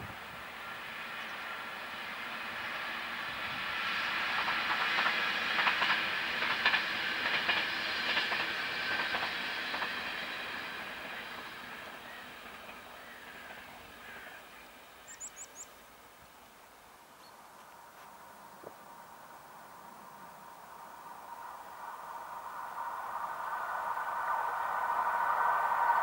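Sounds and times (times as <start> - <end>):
train wheel and rail noise: 0.0 - 26.0
wheels clicking over rail joints: 4.4 - 14.4.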